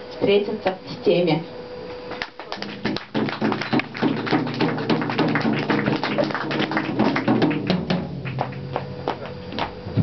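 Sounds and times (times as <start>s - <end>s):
audience clapping: 2.2s - 9.8s.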